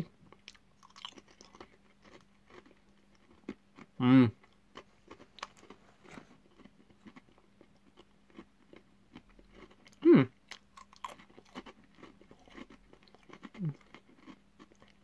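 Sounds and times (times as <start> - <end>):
chewing crunchy pretzels: 0.0 - 15.0
person humming: 4.0 - 4.4, 10.0 - 10.3.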